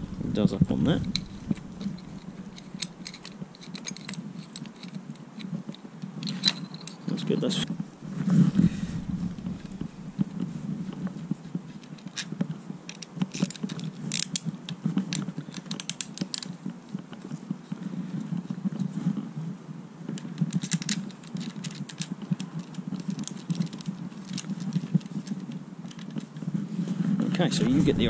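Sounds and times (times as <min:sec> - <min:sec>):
steady low hum: 0:00.0 - 0:04.8, 0:07.6 - 0:11.7, 0:27.5 - 0:28.0
small parts clicking and rattling: 0:00.6 - 0:07.6, 0:11.7 - 0:17.4, 0:20.2 - 0:26.4.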